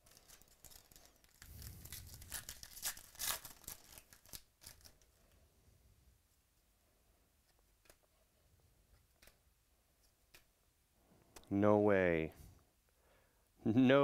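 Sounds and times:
plastic wrapper tearing and crinkling: 0:00.0 - 0:05.2.

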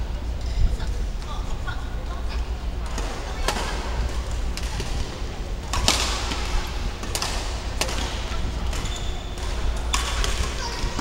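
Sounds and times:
low hum in hall: 0:00.0 - 0:11.0
rackets smacking shuttlecock: 0:02.9 - 0:11.0.

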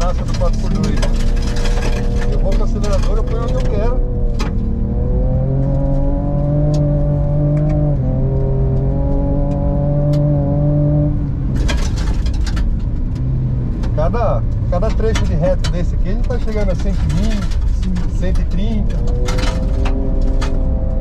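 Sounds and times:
engine accelerating hard: 0:00.0 - 0:12.0.

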